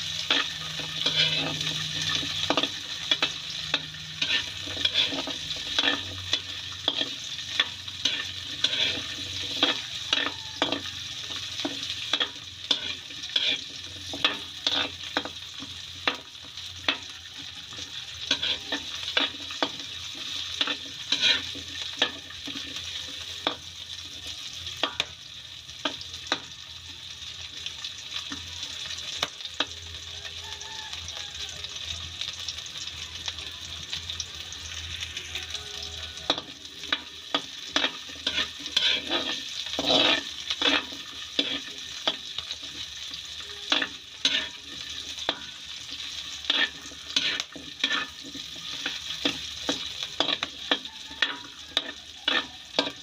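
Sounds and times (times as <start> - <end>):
vegetables sizzling in oil: 0.0 - 53.0
metal ladle scraping and tapping pan: 0.1 - 17.1, 18.2 - 23.7, 24.8 - 25.2, 36.3 - 42.8, 43.7 - 53.0.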